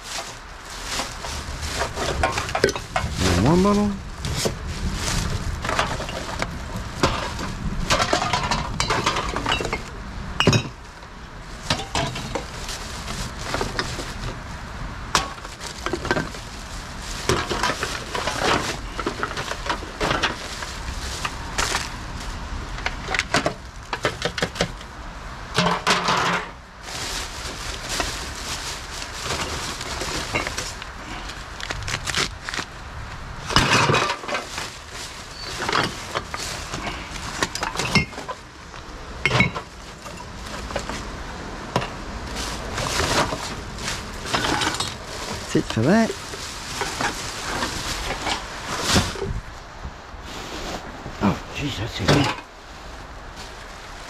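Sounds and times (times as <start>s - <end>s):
plastic bags rustling: 0.0s - 54.0s
cans and bottles clinking: 5.6s - 10.8s, 33.5s - 34.6s, 35.3s - 38.4s, 39.2s - 41.0s.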